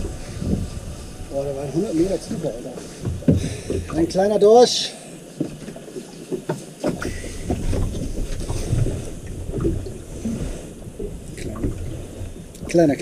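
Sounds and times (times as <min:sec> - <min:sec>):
wind buffeting microphone: 0:00.0 - 0:04.2.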